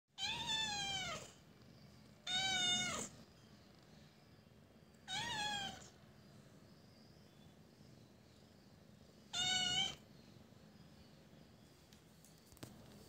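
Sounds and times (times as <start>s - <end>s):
young cat meowing: 0.2s - 1.3s, 2.2s - 3.1s, 5.1s - 5.9s, 9.3s - 10.0s.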